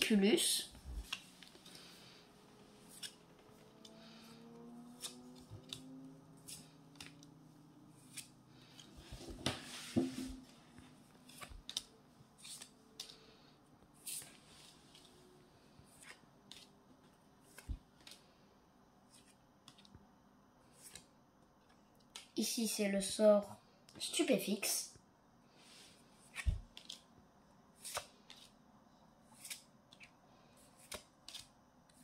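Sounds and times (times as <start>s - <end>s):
cards rustling: 1.0s - 4.3s, 10.9s - 15.1s
cards clicking and scraping: 2.6s - 4.2s, 4.9s - 9.6s, 11.1s - 15.1s, 19.1s - 20.0s, 26.2s - 27.1s, 27.8s - 28.6s, 29.2s - 32.0s.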